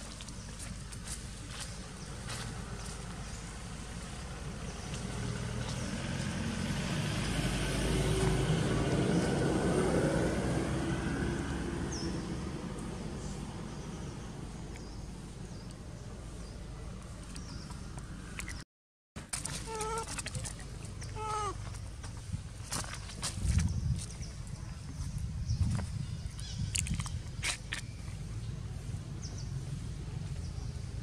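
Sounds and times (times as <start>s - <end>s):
vehicle passing by: 1.6s - 18.0s.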